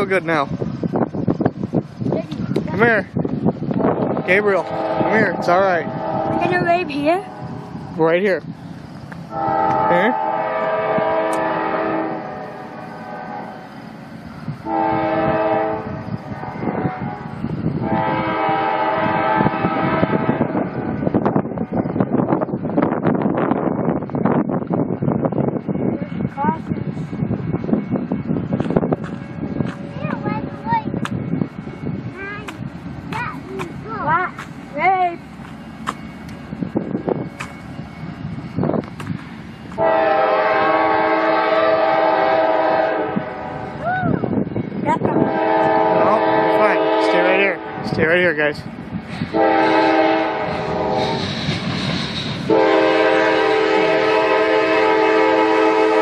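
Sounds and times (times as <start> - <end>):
low rumble: 0.0 - 35.4
locomotive air horn blasts: 4.2 - 7.6, 9.3 - 13.7, 14.6 - 20.6, 39.8 - 43.8, 45.2 - 48.0, 49.3 - 51.3, 52.4 - 56.0.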